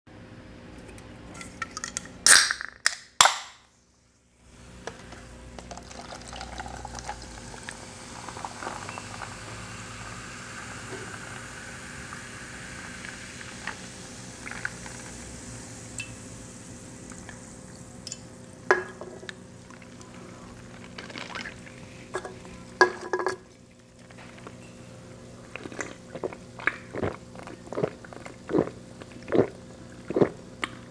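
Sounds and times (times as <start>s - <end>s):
soda pouring over ice: 5.6s - 17.9s, 19.6s - 21.8s
fizzing hiss: 5.8s - 18.0s.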